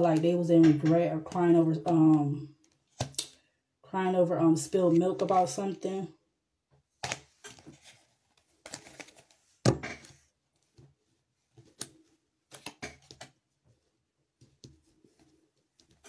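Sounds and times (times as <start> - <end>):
cards being shuffled: 1.9 - 3.3, 7.0 - 9.7, 11.5 - 13.4.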